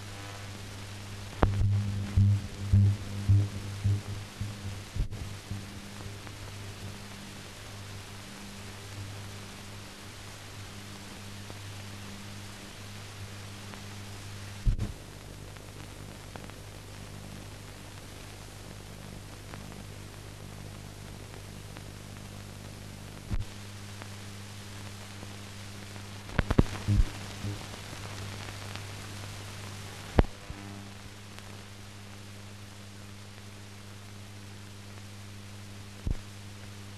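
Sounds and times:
film hiss: 0.0s - 36.9s
low electrical hum: 0.0s - 36.9s
clicks and pops: 1.3s - 5.7s, 26.3s - 27.1s.

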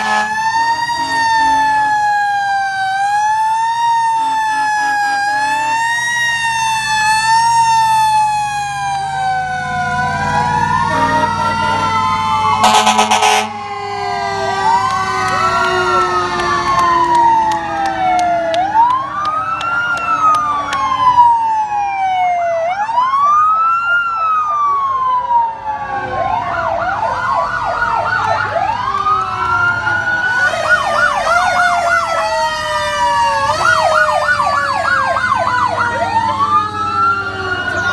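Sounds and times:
horn blast: 0.0s - 0.4s, 12.6s - 16.4s
fire truck sirens wailing: 0.0s - 37.9s
rapid siren yelp: 0.0s - 37.9s
truck engines rumbling: 0.0s - 37.9s.

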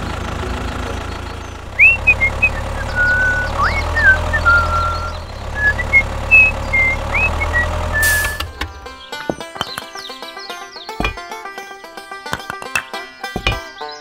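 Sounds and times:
tractor engine running: 0.0s - 13.8s
short high whistled notes: 1.8s - 8.4s.

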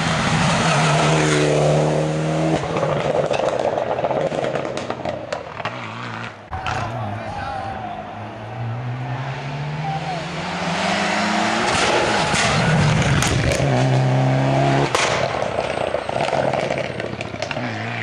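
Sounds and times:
rally car engine revving: 0.0s - 7.1s, 8.4s - 18.0s
exhaust cracks: 2.5s - 7.0s, 11.5s - 18.0s.

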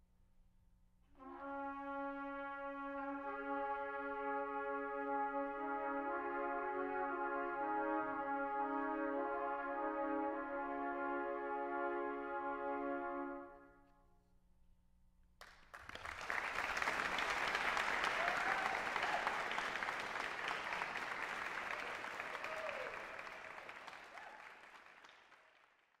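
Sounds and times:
trumpet ensemble chord: 1.2s - 13.8s
audience applause: 15.4s - 26.0s.

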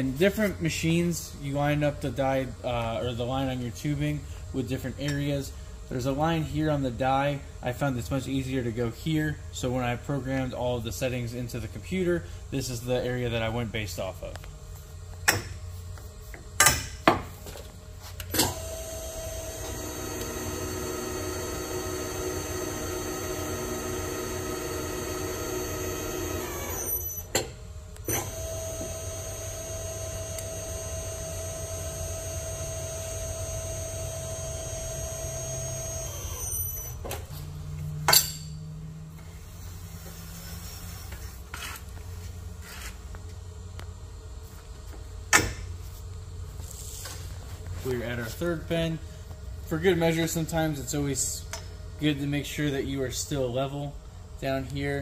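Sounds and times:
tube bender drive whining: 18.5s - 37.3s.

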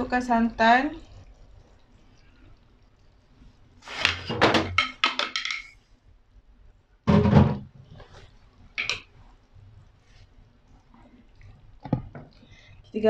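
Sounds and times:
loud thump: 7.1s - 7.6s.

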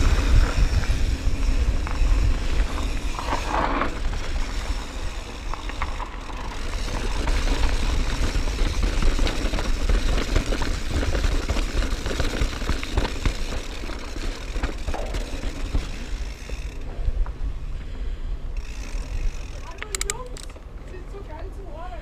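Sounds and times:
wind rumble on microphone: 0.0s - 13.0s
bike rattling and knocking: 0.0s - 17.0s, 18.6s - 20.7s.

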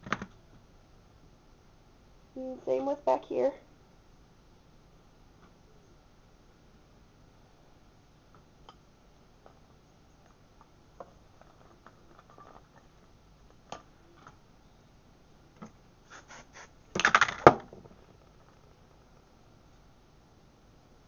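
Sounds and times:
hair scratching and rustling: 16.0s - 16.8s.

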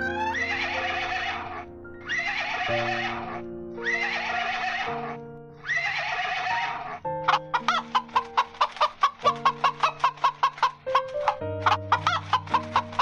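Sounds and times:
horse whinnying: 0.0s - 5.0s, 5.6s - 7.0s
background music: 0.0s - 13.0s.

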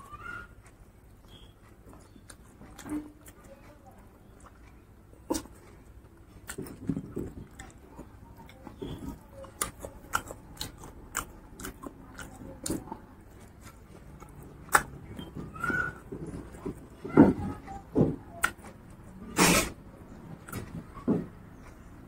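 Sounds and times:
close chewing: 0.0s - 22.0s
wet mouth clicks: 14.1s - 15.3s.

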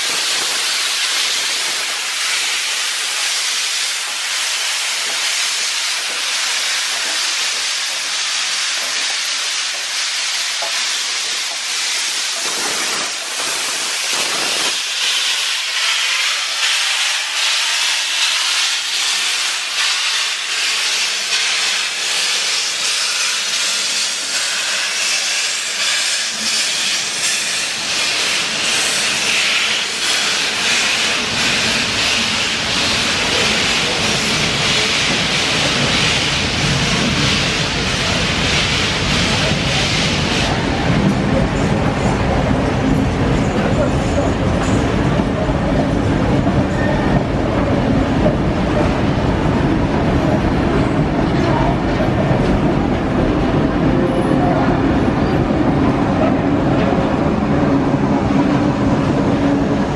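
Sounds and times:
steam hissing from locomotive: 0.0s - 47.1s
train carriages rolling: 0.0s - 59.9s.

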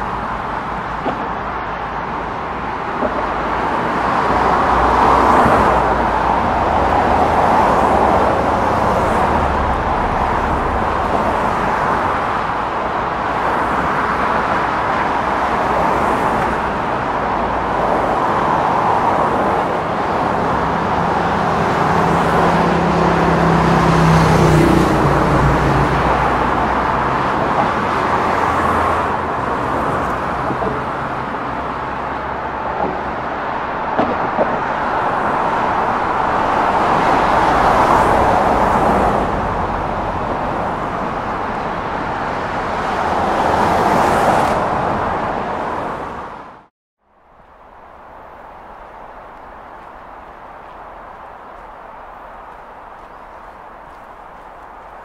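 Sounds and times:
cars passing: 0.0s - 55.0s.

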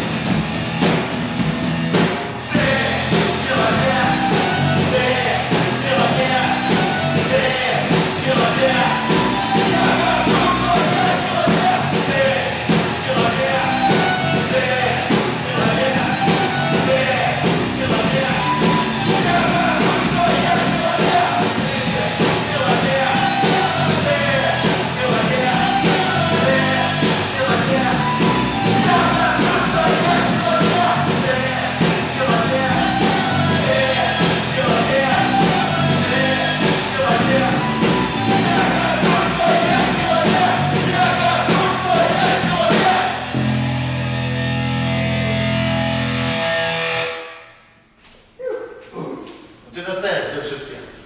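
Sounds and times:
drum beat with cymbals: 0.0s - 43.2s
bass guitar: 0.0s - 47.4s
keyboard: 0.0s - 47.6s
distorted electric guitars: 0.0s - 47.9s
man singing into microphone: 2.6s - 43.3s.

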